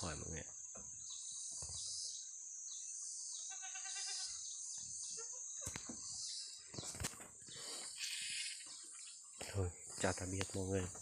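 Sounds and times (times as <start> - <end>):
goat kid bleating: 3.5 - 4.4.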